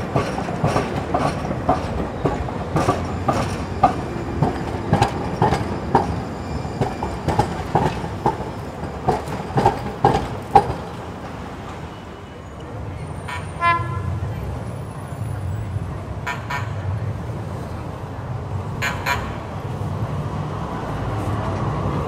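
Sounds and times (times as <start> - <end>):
wheel clacks on track: 0.0 - 11.8
light rail train rumble: 0.0 - 22.0.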